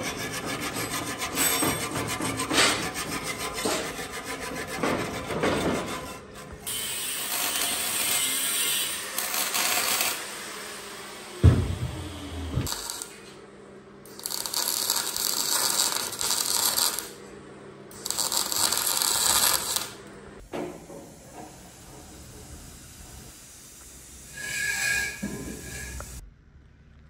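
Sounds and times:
hiss with steady whistle: 22.6 - 26.2.

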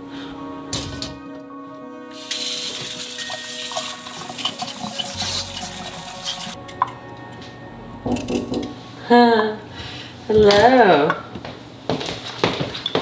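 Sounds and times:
faucet spraying water: 2.1 - 6.6.

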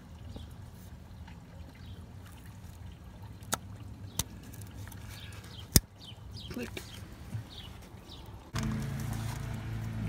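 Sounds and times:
low steady rumble: 8.4 - 10.0.

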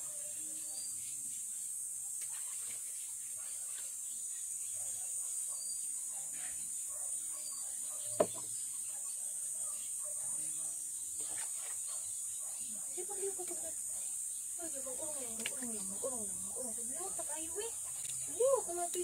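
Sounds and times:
rubbing and splashing water: 2.2 - 4.1, 11.2 - 12.1.

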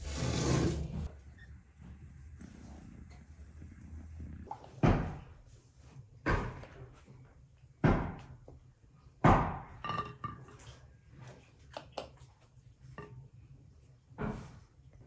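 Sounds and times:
clinks on ceramic plate: 9.8 - 10.7.

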